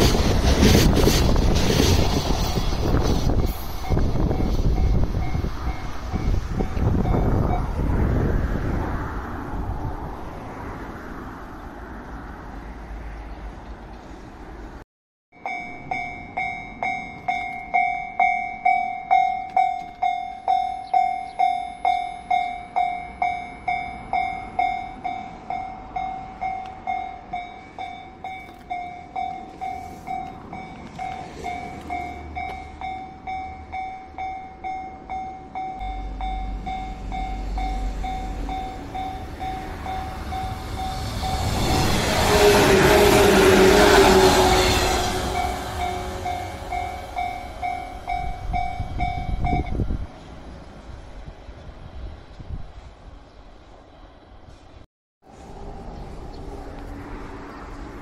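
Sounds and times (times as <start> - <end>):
electric train rushing past: 0.0 - 14.8, 15.4 - 58.0
level-crossing bell ringing: 15.4 - 41.5, 45.3 - 49.7.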